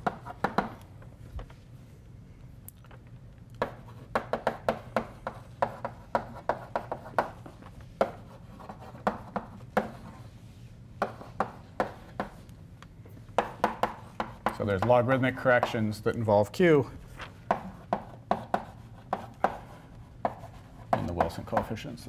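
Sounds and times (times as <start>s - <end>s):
chalk tapping and scraping on blackboard: 0.0s - 0.9s, 3.6s - 12.5s, 13.2s - 16.0s, 17.4s - 21.9s.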